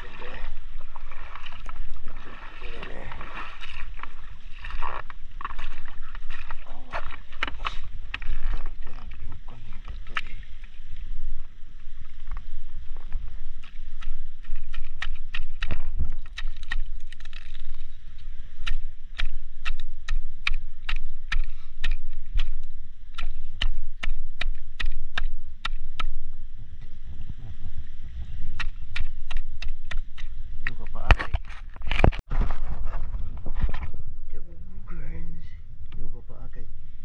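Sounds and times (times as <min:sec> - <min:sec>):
low underwater rumble: 0:00.0 - 0:30.6
sharp underwater clicks: 0:09.9 - 0:10.4, 0:13.5 - 0:26.2, 0:28.5 - 0:32.2.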